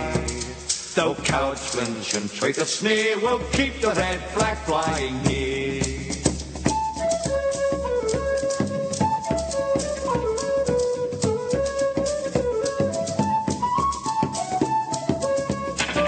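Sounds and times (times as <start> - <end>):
percussion strikes: 0.0 - 16.0.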